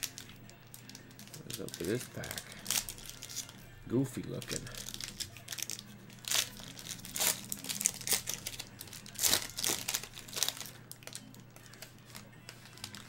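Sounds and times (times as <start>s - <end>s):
foil wrapper crinkling: 0.0s - 3.6s, 4.2s - 13.0s.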